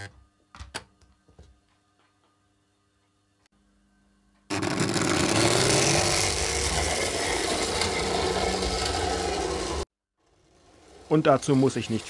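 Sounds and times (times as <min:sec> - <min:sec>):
model train motor whining: 0:04.5 - 0:12.0.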